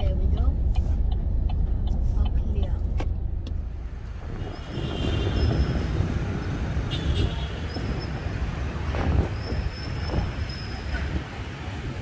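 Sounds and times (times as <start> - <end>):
motorbikes and cars passing: 3.7 - 12.0.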